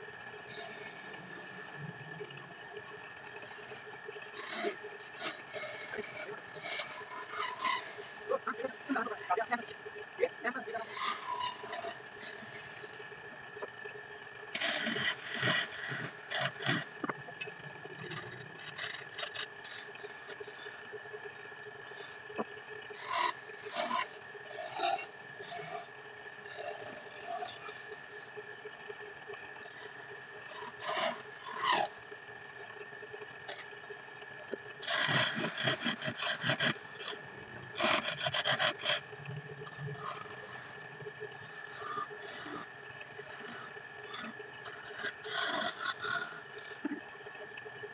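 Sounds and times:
tools scraping turning wood: 0:17.9 - 0:20.4, 0:34.8 - 0:37.2, 0:37.8 - 0:39.0
lathe motor humming: 0:34.5 - 0:39.2
wood rasping on lathe: 0:34.8 - 0:37.2, 0:37.8 - 0:39.0
wood lathe whining: 0:37.8 - 0:39.0.

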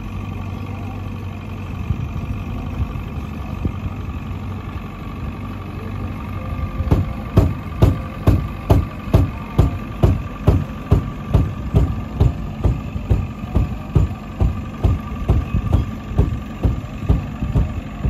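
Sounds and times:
boat motor humming: 0:00.0 - 0:18.0
regular thumps: 0:06.9 - 0:18.0.

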